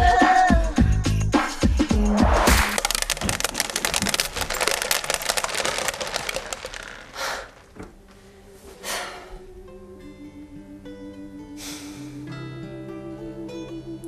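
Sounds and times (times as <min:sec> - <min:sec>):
beads bouncing on wooden floor: 0:02.5 - 0:07.9.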